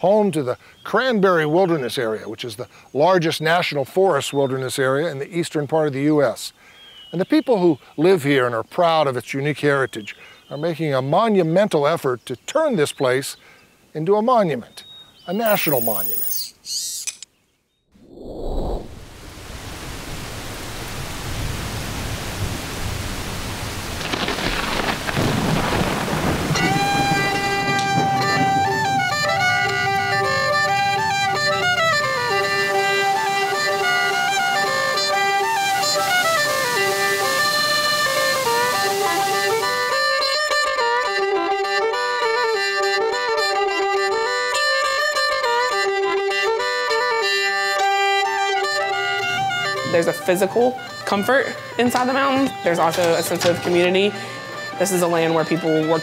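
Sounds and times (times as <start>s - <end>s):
steady rain: 18.9s - 40.2s
low thunder: 24.0s - 32.2s
fiddle bowing a melody: 26.4s - 56.0s.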